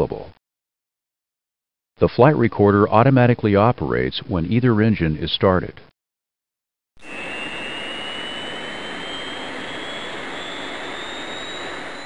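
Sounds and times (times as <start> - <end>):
jet engine spooling up: 7.0 - 12.0.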